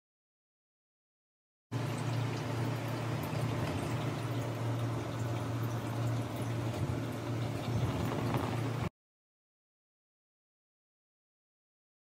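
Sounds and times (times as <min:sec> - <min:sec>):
steady low hum: 0:01.7 - 0:08.9
faint bubbling with pops: 0:01.9 - 0:08.9.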